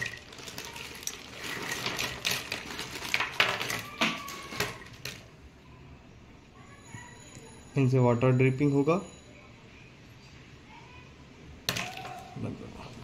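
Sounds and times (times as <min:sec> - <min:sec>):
plastic bag rustling: 0:00.0 - 0:05.3.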